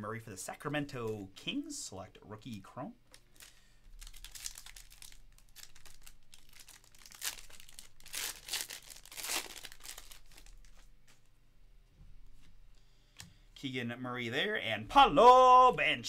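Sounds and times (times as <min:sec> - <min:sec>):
card pack wrapper crinkling and tearing: 0:03.2 - 0:10.9.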